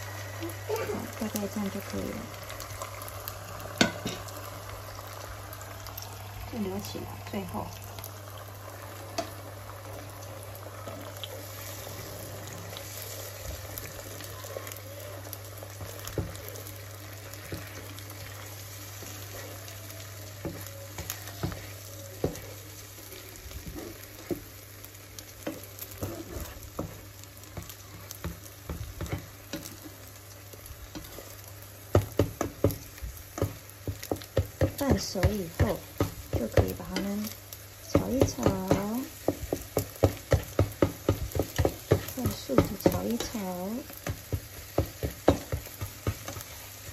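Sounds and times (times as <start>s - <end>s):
egg sizzling in a pan: 0.0s - 46.9s
spatula scraping and tapping pan: 3.8s - 4.3s, 15.6s - 19.7s, 20.4s - 46.9s.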